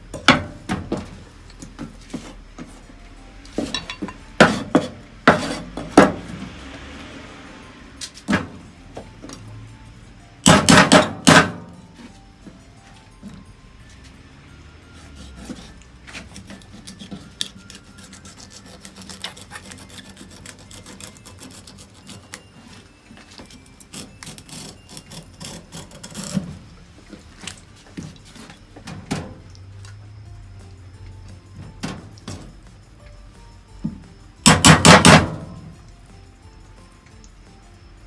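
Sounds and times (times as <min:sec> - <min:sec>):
knife scraping along fish bone: 0:15.0 - 0:22.6, 0:23.9 - 0:26.5.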